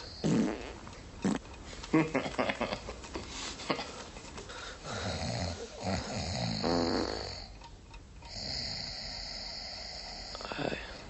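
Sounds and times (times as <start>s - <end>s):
boy snoring: 0.0s - 0.7s, 4.9s - 7.6s, 8.3s - 11.0s.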